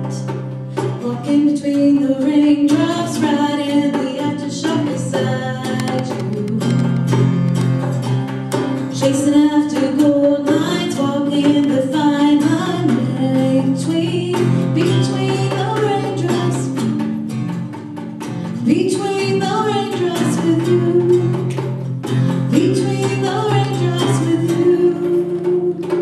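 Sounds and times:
acoustic guitar: 0.0 - 26.0
djembe hand drum: 0.0 - 26.0
woman singing slow melody: 0.9 - 7.1, 9.0 - 16.8, 18.6 - 21.5, 22.5 - 26.0.

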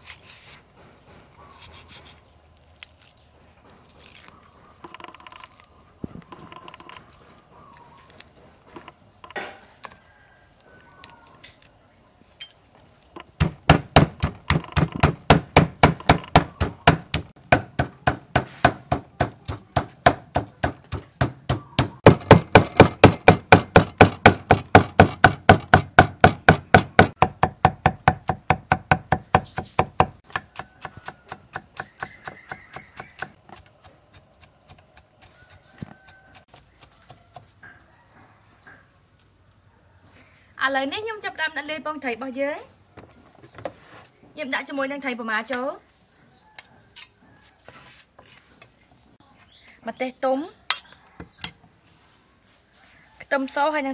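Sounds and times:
cleaver chopping on wooden block: 13.3 - 37.5.

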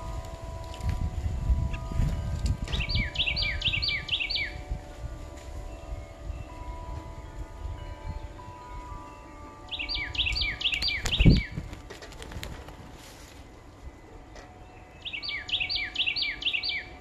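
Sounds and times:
songbird singing: 0.0 - 17.0.

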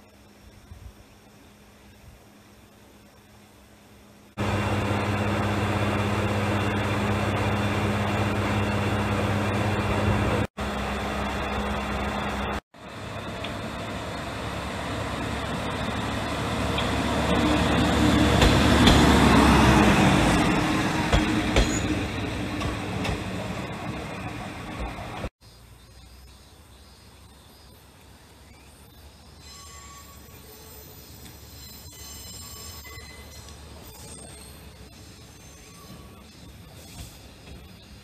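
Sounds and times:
diesel engine humming: 4.4 - 25.3
railcar passing: 4.4 - 25.3
wheels clicking on track: 9.8 - 25.3.

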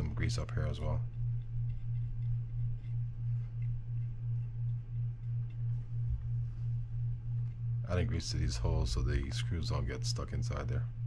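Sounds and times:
low pulsing hum: 0.0 - 11.0.

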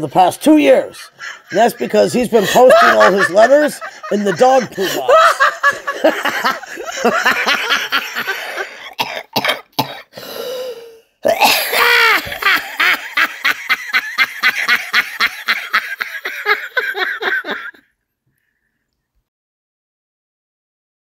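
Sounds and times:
person laughing hard: 0.6 - 9.0, 11.3 - 17.8
person coughing: 8.3 - 10.2, 11.2 - 12.7.

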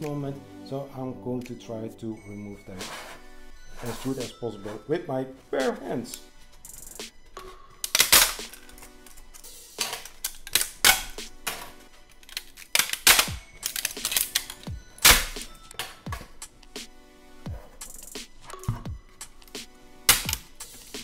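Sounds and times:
background music: 0.0 - 21.0
plastic snapping: 7.4 - 16.3, 18.4 - 21.0.

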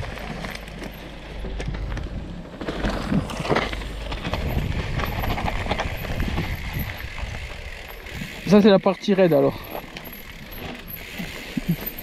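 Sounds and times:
bike chain and frame rattling: 0.0 - 12.0
tyres crunching on dirt trail: 0.0 - 12.0
wind buffeting microphone: 4.2 - 8.5.

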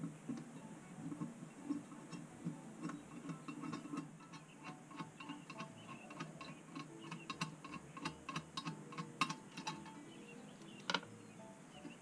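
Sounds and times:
hand ratchet clicking: 1.7 - 10.0.

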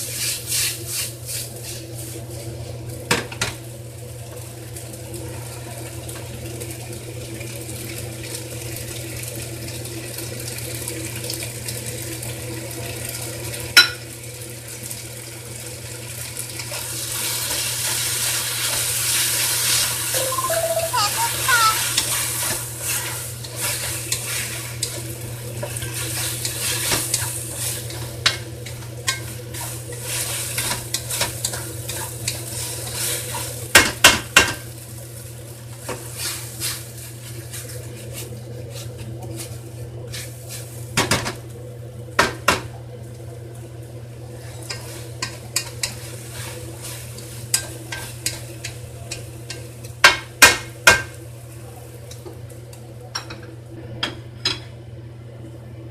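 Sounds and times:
noodles sizzling in a wok: 0.0 - 42.8, 43.4 - 52.6
spatula knocking against pan: 50.0 - 51.1.

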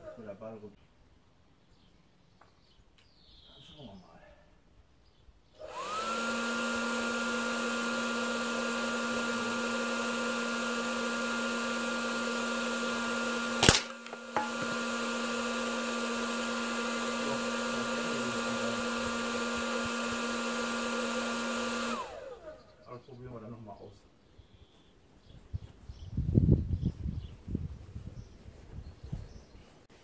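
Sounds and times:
hair dryer running: 5.6 - 22.8
air gun shot: 13.6 - 14.7.

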